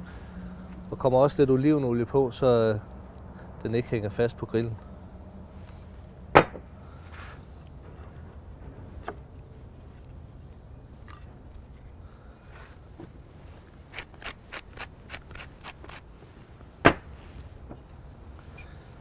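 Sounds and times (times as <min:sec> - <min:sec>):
pepper mill grinding: 0:13.9 - 0:16.0.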